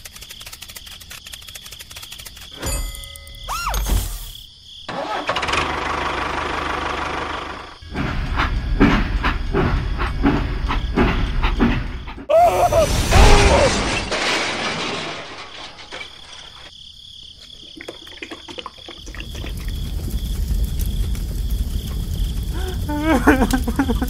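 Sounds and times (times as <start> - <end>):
toy train crashing and clattering: 13.2 - 16.7.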